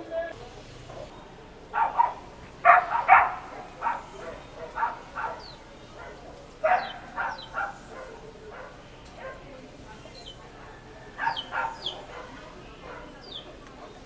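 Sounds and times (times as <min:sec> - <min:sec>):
dog barking: 0:01.7 - 0:09.5, 0:11.1 - 0:13.4.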